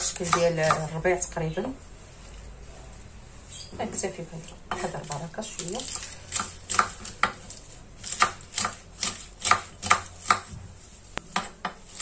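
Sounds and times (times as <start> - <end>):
knife slicing lettuce on board: 4.8 - 10.5, 11.3 - 12.0.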